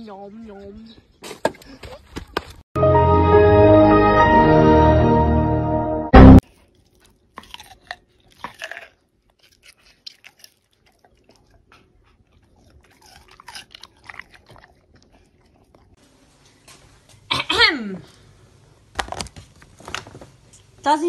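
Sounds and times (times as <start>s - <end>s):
dog crunching cucumber: 6.4s - 16.0s.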